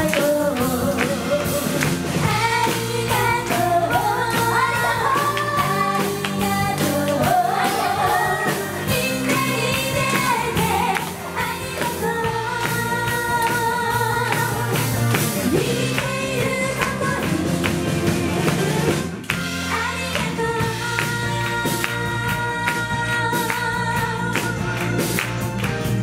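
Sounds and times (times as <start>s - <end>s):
women singing pop: 0.0s - 25.2s
live band playing: 0.0s - 26.0s.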